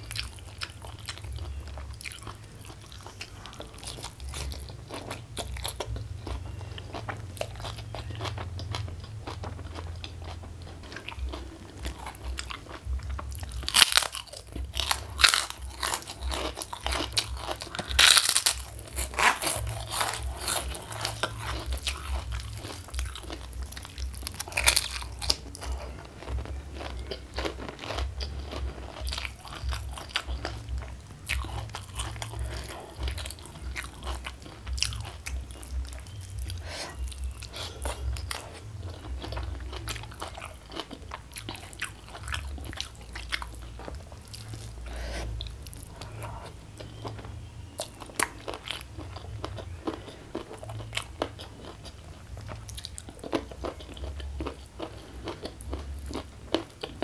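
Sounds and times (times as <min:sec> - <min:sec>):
wet chewing: 0:00.0 - 0:57.0
crisp cracker crunches: 0:06.9 - 0:36.2.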